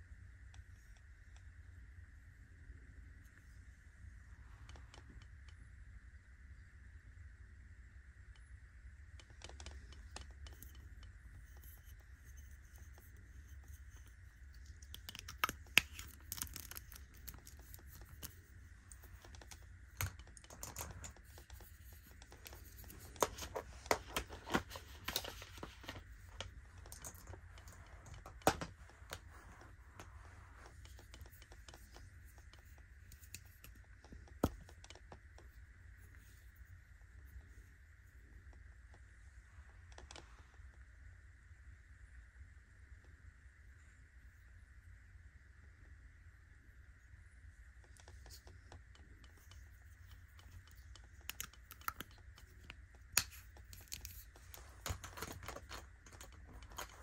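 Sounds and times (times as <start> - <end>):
faint steady hiss: 0.0 - 57.0
cosmetic containers tapped and clicked: 9.2 - 35.3, 47.9 - 57.0
soft taps and scratches: 9.2 - 37.6.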